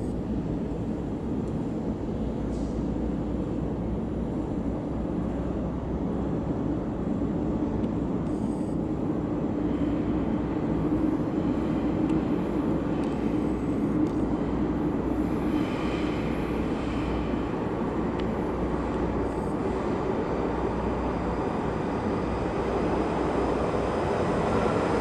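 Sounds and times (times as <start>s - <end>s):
train rumbling on track: 8.8s - 25.0s.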